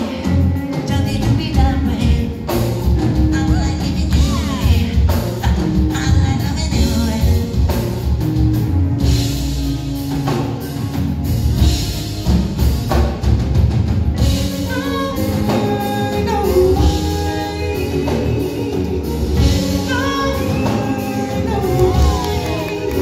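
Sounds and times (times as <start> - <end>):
live rock band playing: 0.0 - 23.0
man singing: 14.4 - 23.0.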